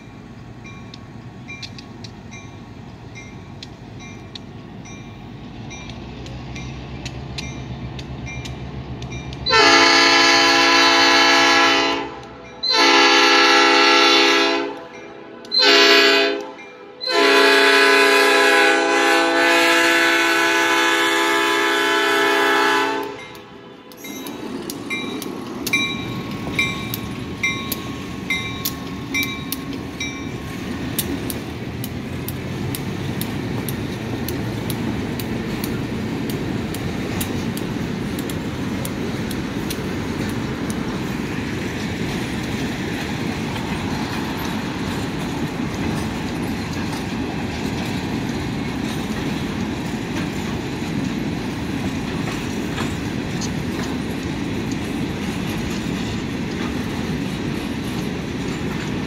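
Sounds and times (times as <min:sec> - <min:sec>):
train bell ringing: 0:00.0 - 0:09.7, 0:12.4 - 0:13.1, 0:14.8 - 0:15.8, 0:16.5 - 0:17.2, 0:23.1 - 0:30.6
train wheels rumbling and clacking: 0:00.0 - 0:59.0
locomotive horn: 0:09.4 - 0:24.0.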